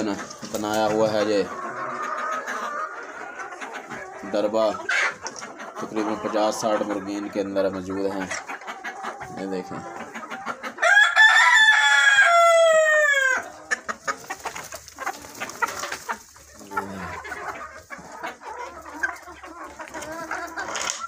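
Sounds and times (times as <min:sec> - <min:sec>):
hens clucking: 0:00.0 - 0:21.0
rooster crowing: 0:10.8 - 0:13.4.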